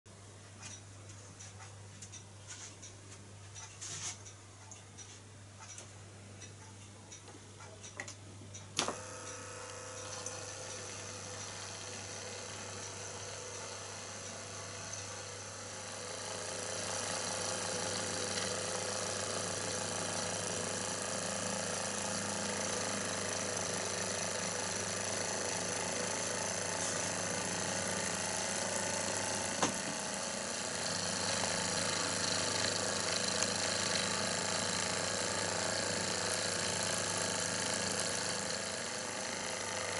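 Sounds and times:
sharp click: 0:07.9 - 0:10.4
miniature engine whirring and clattering: 0:09.0 - 0:39.9.

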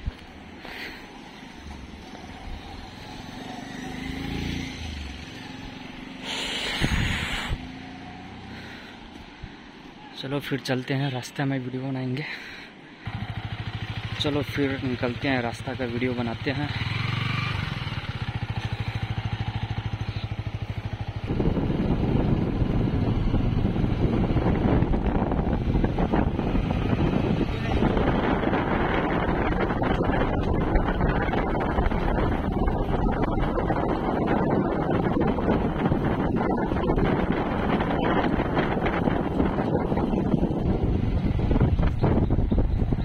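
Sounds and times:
motorcycle engine passing: 0:01.4 - 0:08.9, 0:13.1 - 0:15.0, 0:16.4 - 0:43.0
loud rush of noise: 0:06.2 - 0:07.6
wind on microphone: 0:06.4 - 0:07.7, 0:17.6 - 0:43.0.

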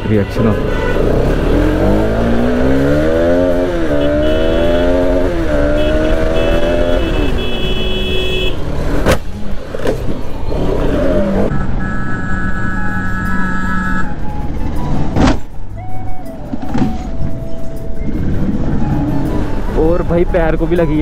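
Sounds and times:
road noise: 0:00.0 - 0:21.0
vehicle engine revving: 0:00.6 - 0:15.2.

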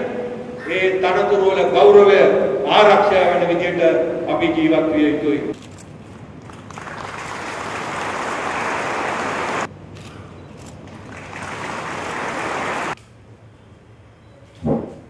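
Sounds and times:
audience applauding: 0:06.5 - 0:09.7, 0:11.0 - 0:13.0.

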